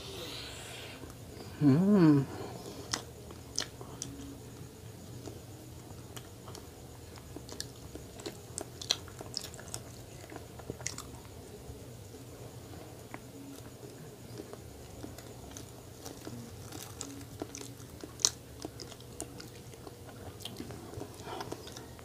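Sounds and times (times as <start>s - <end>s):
person humming: 0.0s - 2.7s
chewing and biting donut: 6.1s - 11.3s, 14.3s - 22.0s.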